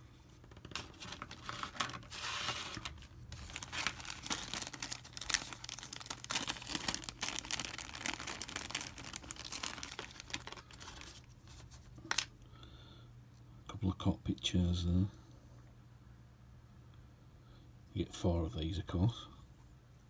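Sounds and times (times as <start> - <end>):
plastic bags crinkling: 0.4 - 12.3.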